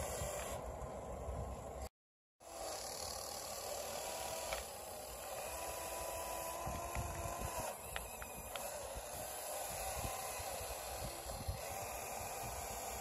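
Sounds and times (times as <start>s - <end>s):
wind buffeting microphone: 0.0s - 1.8s, 6.4s - 13.0s
small electric motors whining: 0.0s - 13.0s.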